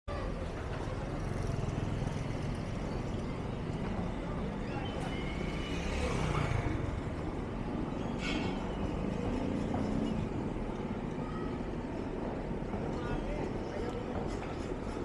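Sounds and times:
low traffic rumble: 0.1 - 15.0
motorcycles riding past: 0.5 - 7.6.

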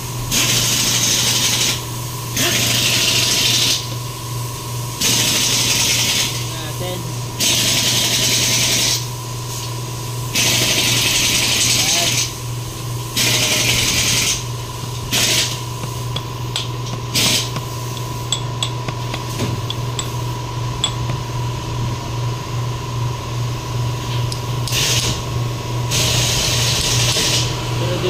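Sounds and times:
steady low hum: 0.0 - 28.0
tool tapping metal housing: 15.8 - 20.2, 20.8 - 21.3.

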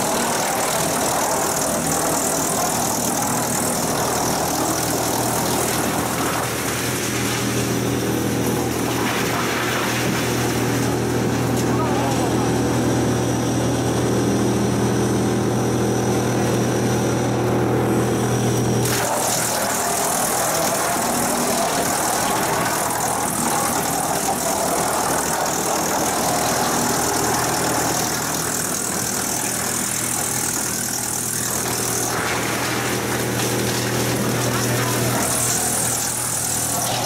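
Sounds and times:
drum chipping log: 0.0 - 8.1, 18.9 - 37.0
wood chipper humming: 0.0 - 37.0.

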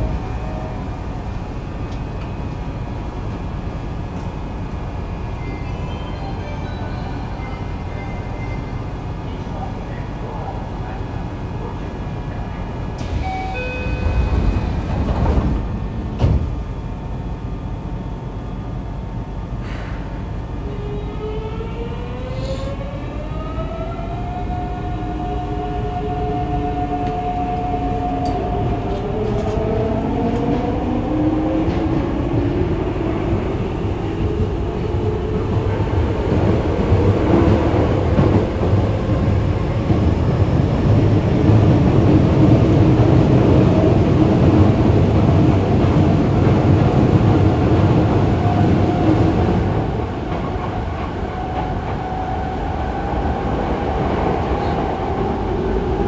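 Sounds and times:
wheels rumbling on rails: 25.3 - 56.0.

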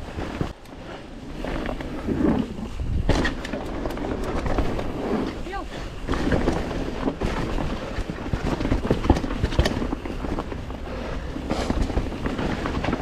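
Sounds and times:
bike tyre noise: 0.0 - 13.0
wind rushing over microphone: 1.3 - 13.0
bike rattling knocks: 3.0 - 4.9, 6.1 - 13.0.

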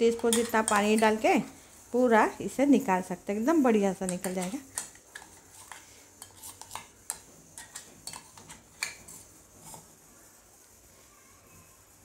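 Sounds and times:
spoon scraping ceramic bowl: 0.0 - 1.4, 4.0 - 10.0.

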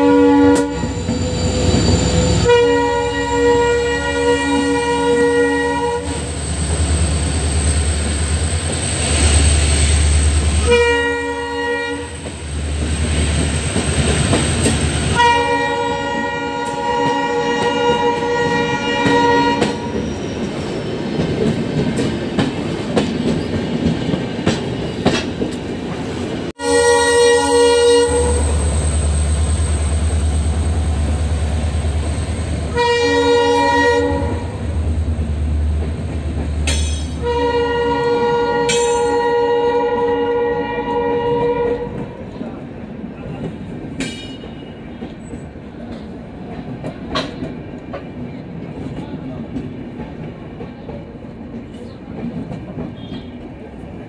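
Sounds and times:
diesel locomotive horn: 0.0 - 6.4, 10.5 - 12.3, 15.1 - 20.0, 26.6 - 29.0, 32.6 - 34.7, 37.1 - 42.2, 52.9 - 53.5
train wheels clickety-clack: 12.1 - 15.3, 16.1 - 26.5, 35.7 - 37.5, 41.3 - 54.0.

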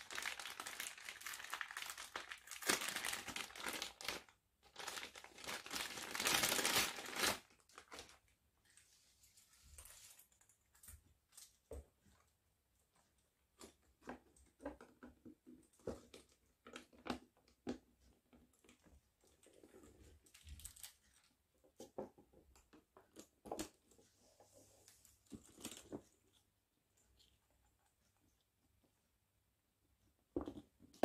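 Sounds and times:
wrapping paper rustling: 0.0 - 10.5.

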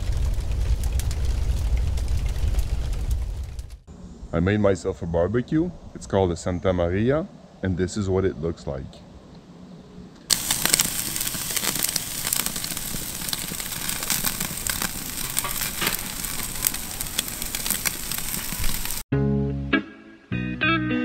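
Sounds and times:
fire crackling: 0.0 - 4.0, 10.3 - 19.1
steaks sizzling on grill: 10.3 - 19.0.

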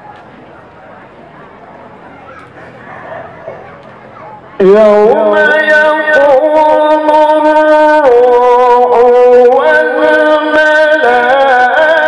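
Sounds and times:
man reciting melodically: 4.6 - 12.0.

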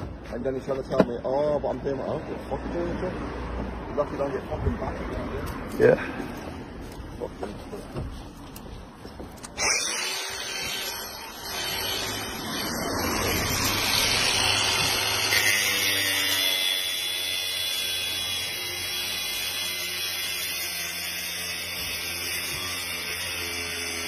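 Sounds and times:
angle grinder cutting steel: 9.5 - 24.0.

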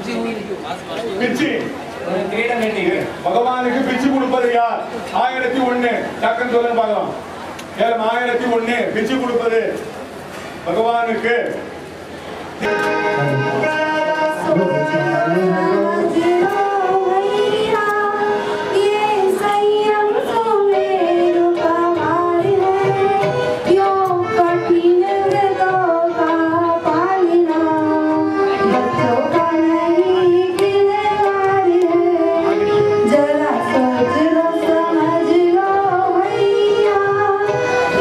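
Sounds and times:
sung melody with accompaniment: 11.8 - 38.0
light percussive beat: 21.5 - 38.0.

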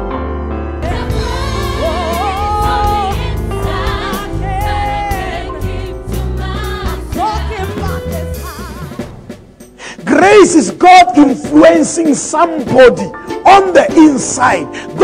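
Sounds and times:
person singing with vibrato: 0.8 - 9.2
band with bass and drums: 0.8 - 13.0.

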